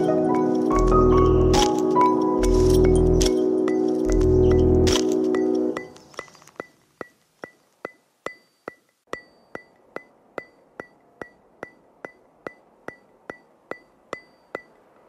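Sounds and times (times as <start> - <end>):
background music: 0.0 - 6.0
ringing percussive ticking: 0.0 - 15.0.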